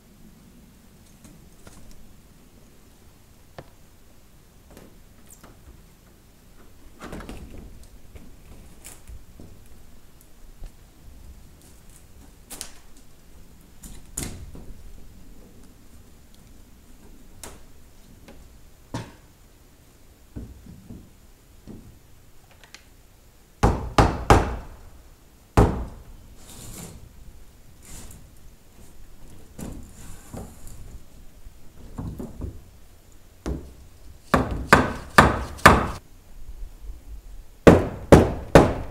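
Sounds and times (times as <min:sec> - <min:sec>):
knocks of wood being handled: 0:20.3 - 0:22.0, 0:31.7 - 0:32.7, 0:33.4 - 0:36.0
hammer striking wood: 0:23.6 - 0:24.8, 0:25.6 - 0:26.0, 0:34.3 - 0:36.0, 0:37.6 - 0:38.9.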